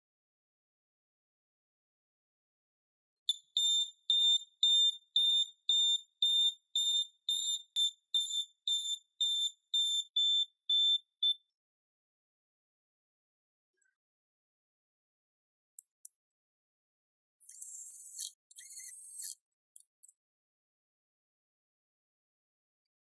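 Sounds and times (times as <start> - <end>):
turn signal buzzer beeping: 3.3 - 11.4.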